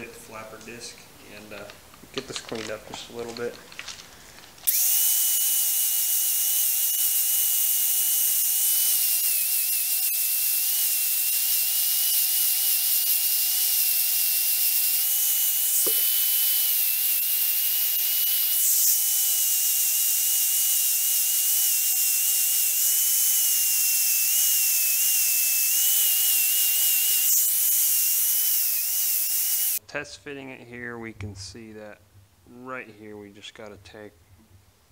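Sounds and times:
angle grinder grinding metal: 0:04.6 - 0:29.8.

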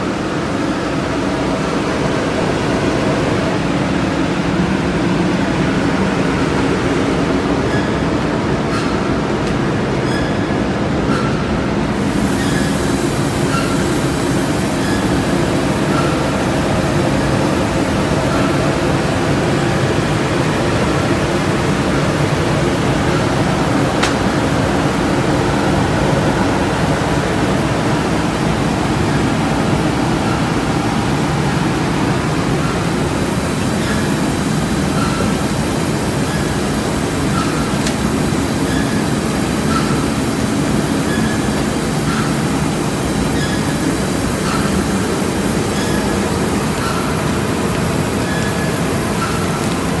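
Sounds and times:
loud steady machine noise: 0:00.0 - 0:50.0
faint short squeaks: 0:10.0 - 0:10.5.

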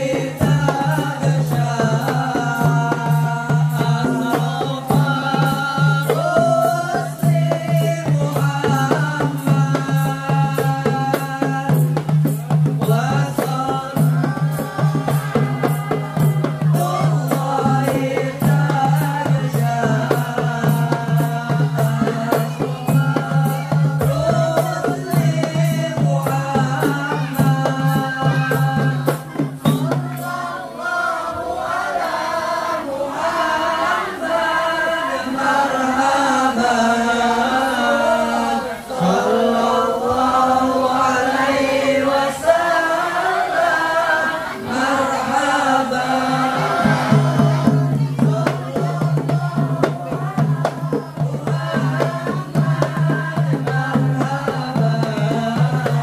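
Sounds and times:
quick jingling beat: 0:00.0 - 0:30.4
hand drums: 0:00.0 - 0:30.7, 0:44.2 - 0:56.0
boys chanting in unison: 0:00.0 - 0:56.0.

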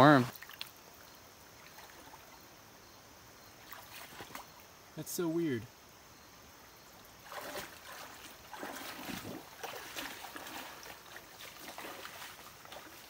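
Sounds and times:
water trickling: 0:00.0 - 0:02.6, 0:06.5 - 0:13.0
creek water splashing: 0:00.0 - 0:13.0.

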